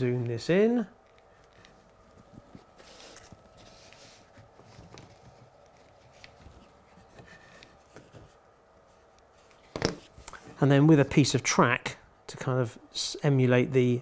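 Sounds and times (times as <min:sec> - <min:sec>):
soft rustling of a sleeve: 0:01.0 - 0:10.8.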